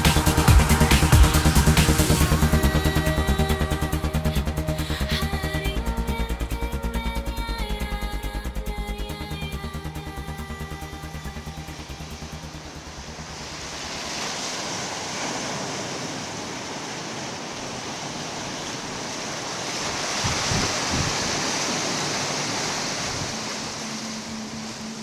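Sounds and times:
surf breaking on rocky shore: 13.0 - 25.0.

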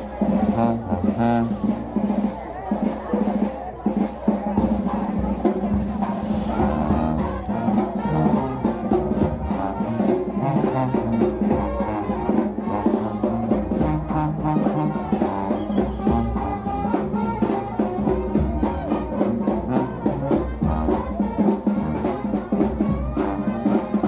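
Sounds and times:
brass band music: 0.0 - 24.0.

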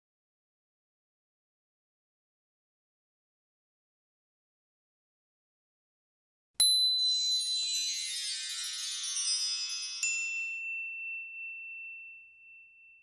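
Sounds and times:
shimmering bell-like chimes: 6.6 - 13.0.

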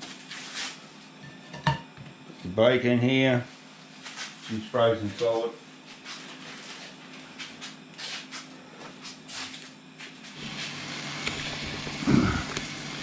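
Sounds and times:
camping stove burner rushing: 10.4 - 13.0.

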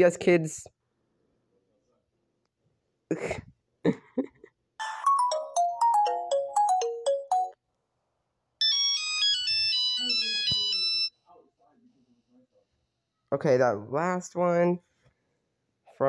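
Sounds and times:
phone ringtone falling notes: 4.8 - 7.6, 8.6 - 11.1
quick beeping ringtone melody: 4.8 - 7.6, 8.6 - 11.1.

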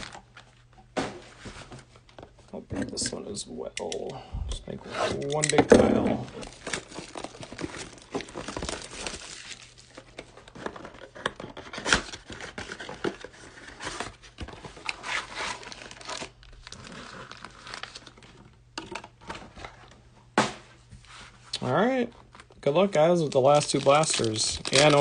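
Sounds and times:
plastic wrap crinkling: 6.2 - 11.1, 14.8 - 18.5, 22.3 - 25.0
foil packs rustling: 6.3 - 11.1, 11.7 - 18.5, 22.4 - 25.0.

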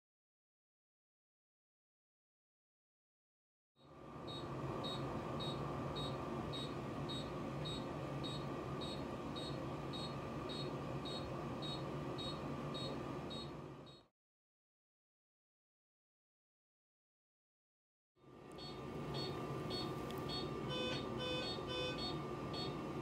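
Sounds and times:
hum of medical equipment: 3.8 - 14.1, 18.2 - 23.0
patient monitor beeping: 4.3 - 14.1, 18.5 - 23.0.

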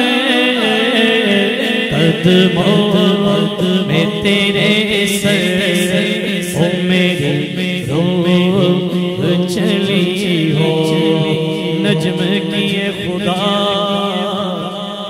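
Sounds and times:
man singing: 0.0 - 15.0.

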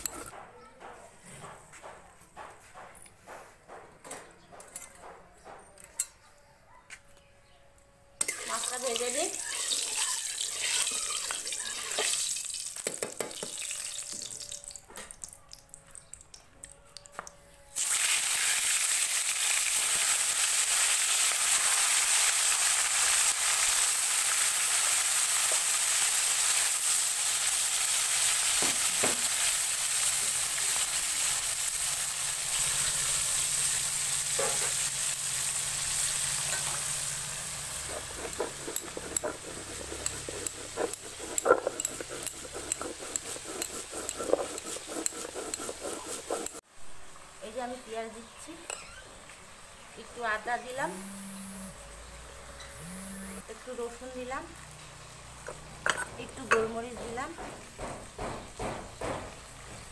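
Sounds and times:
fish sizzling in hot oil: 8.2 - 14.8, 17.8 - 39.0
metal spatula scraping a wok: 32.3 - 46.6
spices ground on a stone: 34.6 - 46.6.

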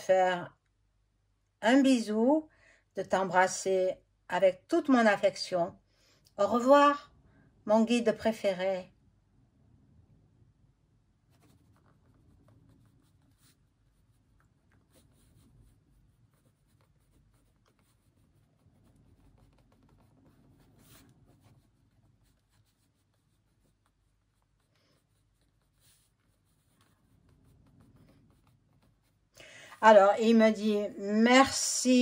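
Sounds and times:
pen scratching on paper: 11.3 - 30.6.

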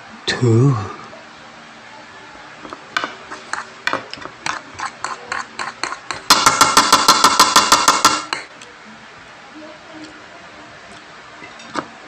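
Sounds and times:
cutlery clinking on a plate: 3.0 - 8.5.

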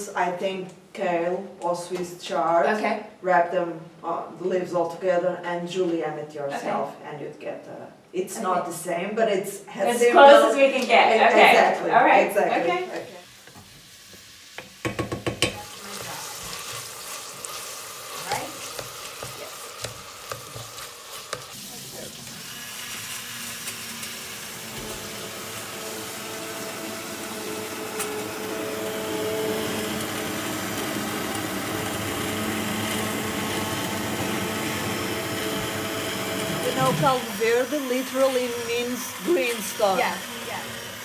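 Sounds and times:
spoon knocking against metal pot: 14.6 - 15.6
hand blender running: 14.9 - 41.0.

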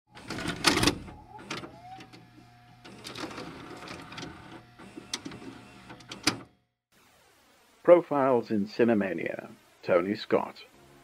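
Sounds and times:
tape player clunk: 2.8 - 6.5.

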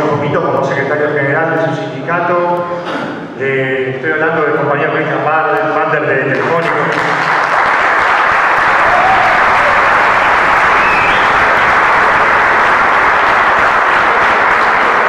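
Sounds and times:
crowd applauding: 6.3 - 15.0.

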